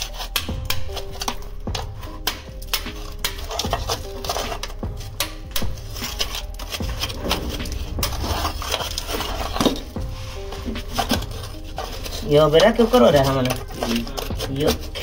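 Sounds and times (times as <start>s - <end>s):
hand tools scraping and crunching: 0.0s - 15.0s.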